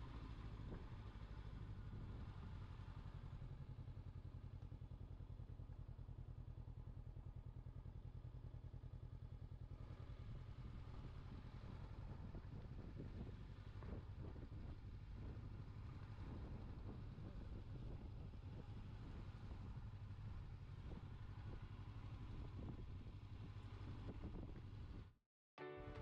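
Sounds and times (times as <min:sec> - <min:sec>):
wind and road noise rushing: 0:10.6 - 0:25.1.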